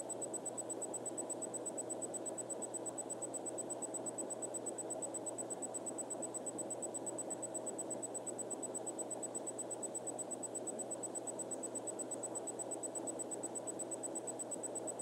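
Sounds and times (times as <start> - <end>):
faint high-pitched pulsing tone: 0.0 - 15.0.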